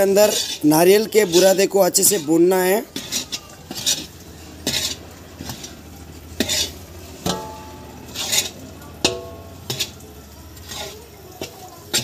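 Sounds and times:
metal ladle scraping iron pan: 0.0 - 12.0
ringing metal knocks on pan: 7.2 - 8.0, 9.0 - 9.9.

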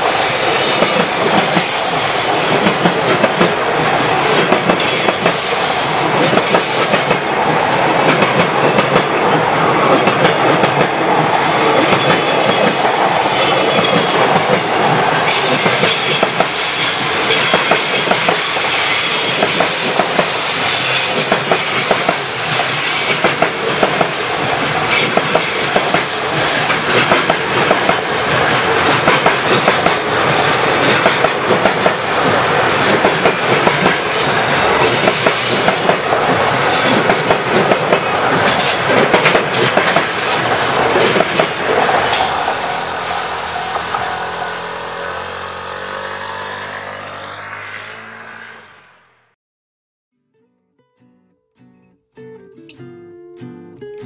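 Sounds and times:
high wheel squeal: 0.0 - 8.1, 11.2 - 28.6, 39.5 - 49.3
train wheels clattering over rail joints: 0.6 - 42.4.

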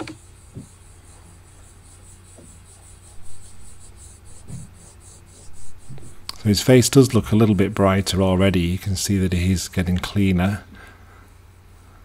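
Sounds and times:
steady low hum: 0.0 - 12.0
cotton swab rubbing painting: 0.2 - 6.8.

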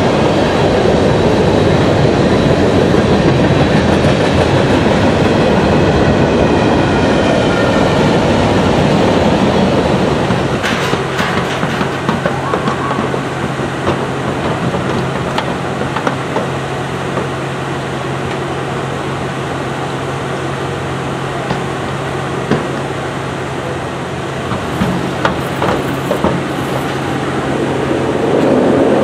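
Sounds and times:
low mechanical hum: 0.0 - 29.0
hooves on wooden ramp: 24.5 - 27.2.

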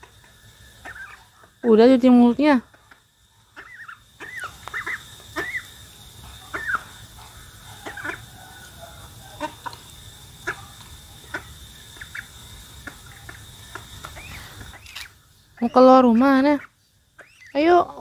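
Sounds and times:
duckling peeping: 0.8 - 1.8, 3.5 - 5.8, 6.5 - 7.0, 7.8 - 8.3, 9.3 - 9.8, 11.2 - 18.0.

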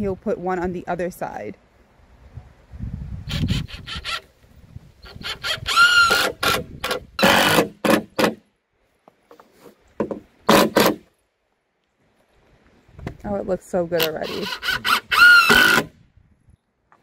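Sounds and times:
cordless drill motor whir: 3.3 - 4.3, 5.0 - 8.0, 14.0 - 15.9
screws seating clicks and knocks: 5.3 - 8.4.

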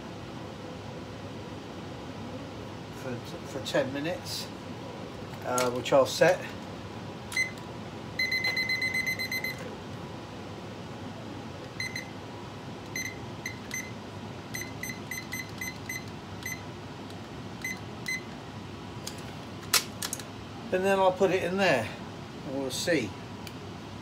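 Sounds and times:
kitchen timer beeping: 8.2 - 9.6, 11.8 - 12.1, 13.0 - 14.0.

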